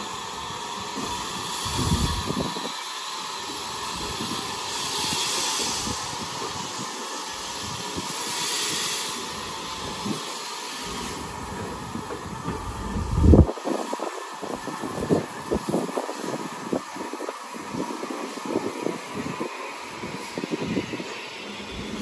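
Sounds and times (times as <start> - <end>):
steam train hissing: 0.0 - 22.0
low rumble: 12.4 - 13.5.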